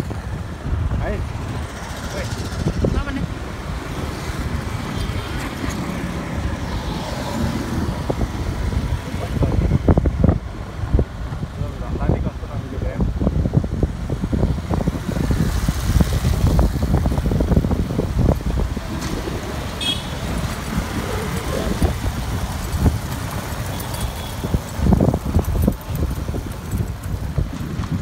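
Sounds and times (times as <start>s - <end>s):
traffic rumbling past: 13.7s - 28.0s.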